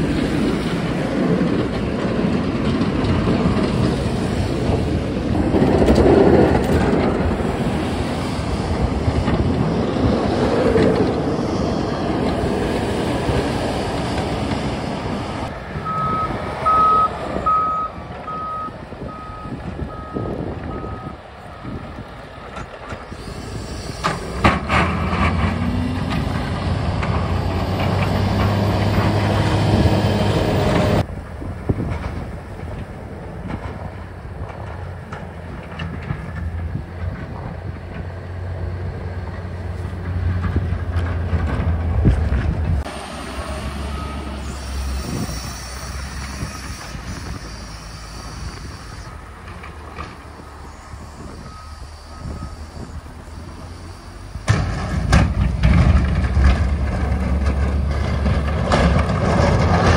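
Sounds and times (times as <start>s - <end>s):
snow plow engine running: 0.0s - 59.9s
reversing alarm beeping: 15.8s - 21.2s, 27.2s - 29.3s, 43.8s - 49.4s, 50.2s - 54.5s
clatter: 54.4s - 59.9s.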